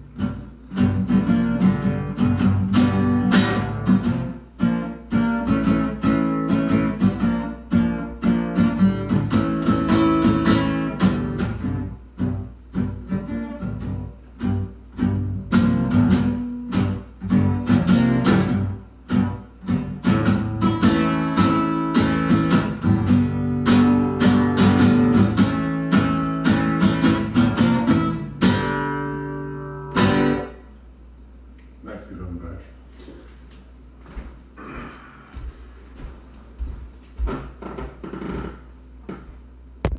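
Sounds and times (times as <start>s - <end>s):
acoustic guitar strumming: 0.0s - 30.7s.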